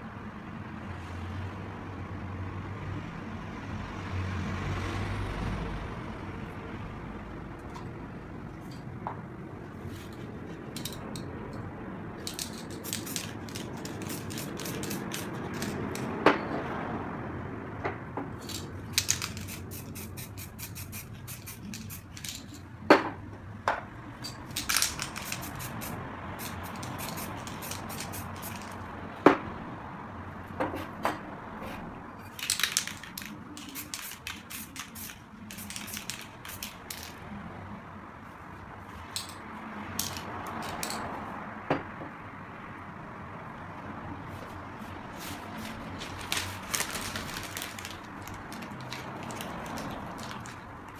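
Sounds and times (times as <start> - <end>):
spray paint can hissing: 12.2 - 16.1, 18.4 - 22.6, 24.5 - 28.9, 32.3 - 37.2, 44.8 - 50.9.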